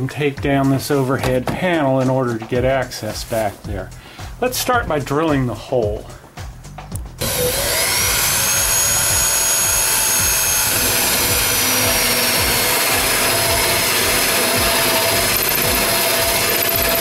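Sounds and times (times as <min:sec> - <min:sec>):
electric drill running: 0:07.2 - 0:17.0.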